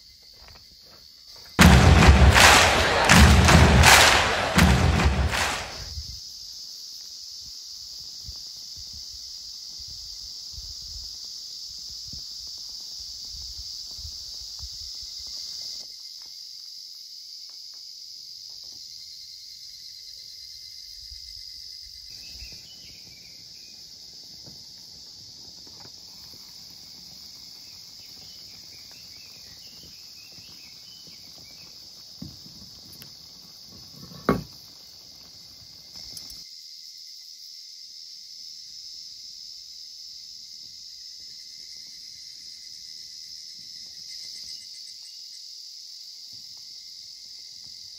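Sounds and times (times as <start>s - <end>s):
insects droning: 0.0s - 1.6s, 5.9s - 47.9s
sharp click: 1.6s - 5.8s.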